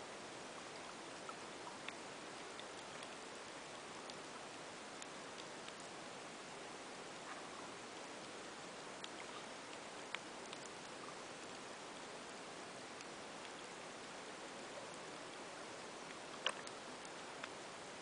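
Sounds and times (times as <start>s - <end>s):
sharp clicks underwater: 0.9s - 5.9s, 8.2s - 11.7s, 16.0s - 17.6s.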